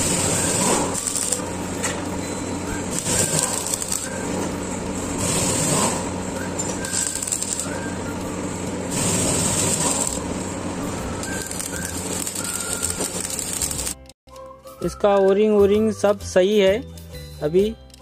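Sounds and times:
steady low hum: 0.0 - 14.0
welding arc crackling: 0.0 - 14.2.

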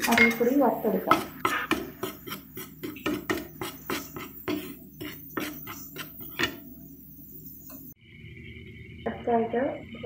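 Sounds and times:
wooden spatula scraping a pan: 0.0 - 6.8.

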